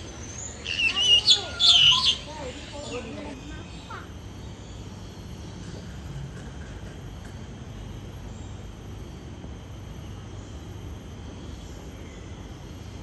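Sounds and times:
faint insect chirring: 0:00.0 - 0:13.0.

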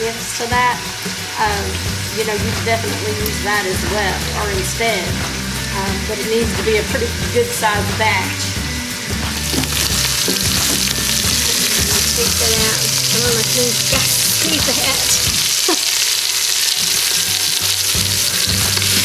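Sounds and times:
meat sizzling in hot oil: 0:00.0 - 0:19.0
utensil stirring in a pot: 0:09.4 - 0:19.0.

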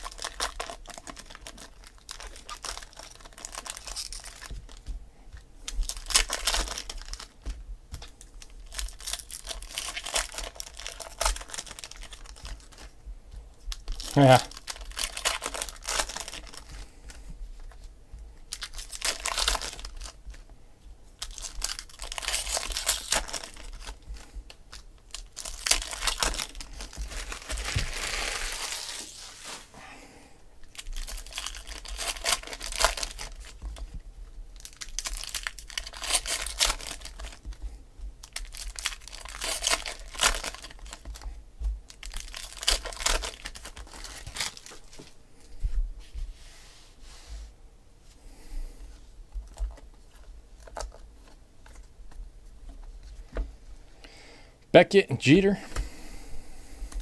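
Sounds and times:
foil wrappers crinkling and tearing: 0:00.0 - 0:04.9, 0:05.6 - 0:13.0, 0:13.7 - 0:17.9, 0:18.5 - 0:20.5, 0:21.2 - 0:29.7, 0:30.6 - 0:45.1, 0:49.4 - 0:51.9.

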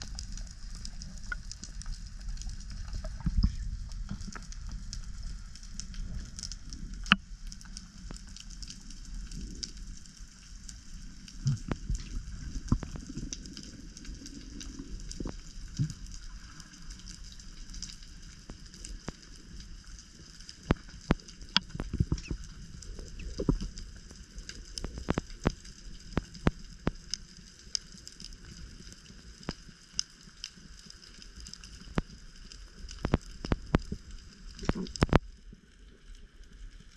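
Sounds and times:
low rumble of moving water: 0:00.0 - 0:36.9
underwater clicks and pops: 0:07.0 - 0:07.2, 0:11.4 - 0:13.0, 0:20.7 - 0:22.6, 0:23.2 - 0:23.8, 0:34.6 - 0:35.2.

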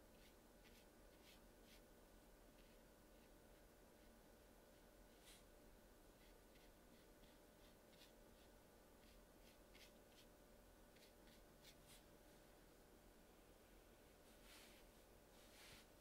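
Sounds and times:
steady low hum: 0:00.0 - 0:16.0
brush scratching on paper: 0:00.1 - 0:01.9, 0:02.5 - 0:05.5, 0:06.1 - 0:10.3, 0:10.9 - 0:12.1, 0:14.3 - 0:16.0.

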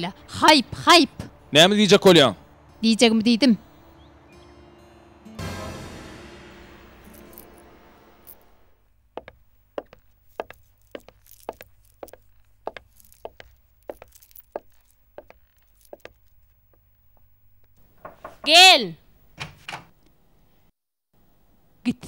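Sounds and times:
background music: 0:00.0 - 0:08.8
footsteps on hard floor: 0:09.2 - 0:17.3.

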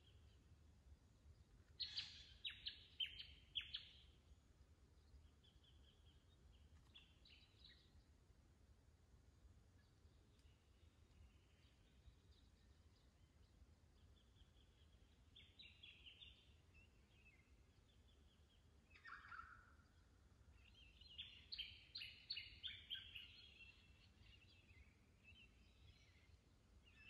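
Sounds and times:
faint bird calls: 0:01.8 - 0:04.0.

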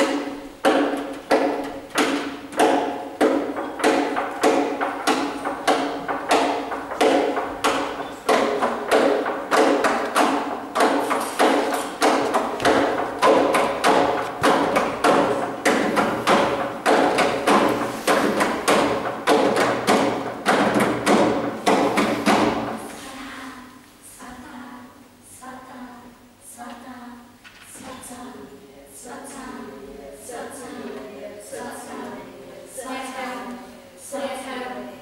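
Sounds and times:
heavy percussive thuds: 0:00.0 - 0:23.0.

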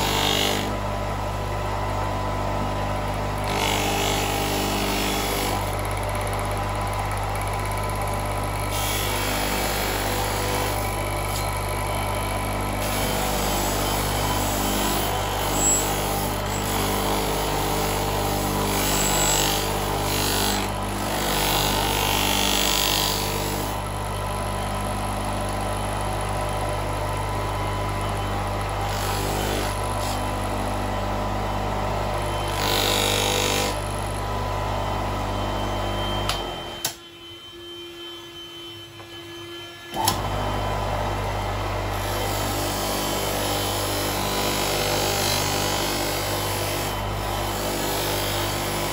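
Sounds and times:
electric polishing motor humming: 0:00.0 - 0:23.7
metal rubbing on polishing wheel: 0:13.3 - 0:16.8.

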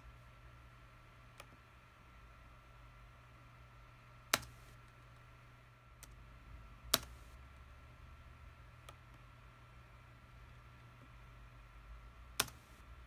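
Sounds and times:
faint steady hum: 0:00.0 - 0:13.0
computer input clicks: 0:12.4 - 0:12.8.

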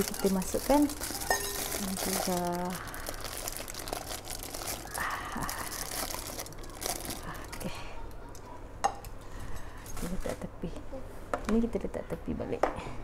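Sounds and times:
plastic packaging crinkling: 0:00.0 - 0:07.7.

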